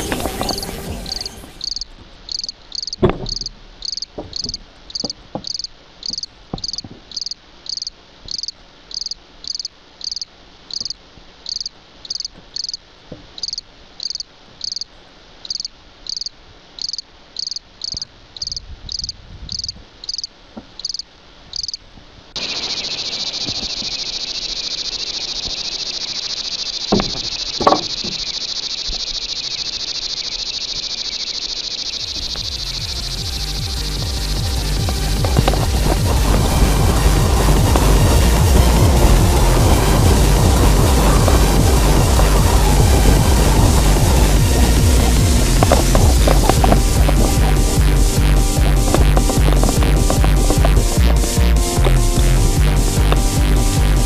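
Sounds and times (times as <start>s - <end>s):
cricket chirping: 0.0s - 54.0s
high continuous insect buzz: 0.0s - 54.0s
sharp knocks: 2.4s - 7.3s, 26.9s - 28.2s.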